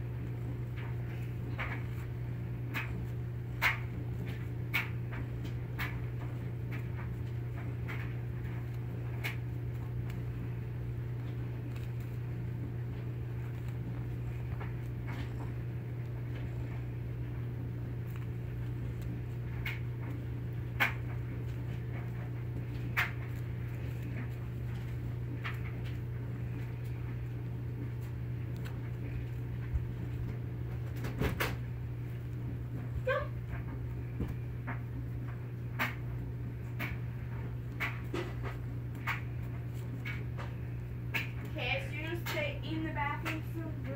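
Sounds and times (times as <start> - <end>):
steady low hum: 0.0 - 43.9
cat swatting with taps and clicks: 30.8 - 31.7.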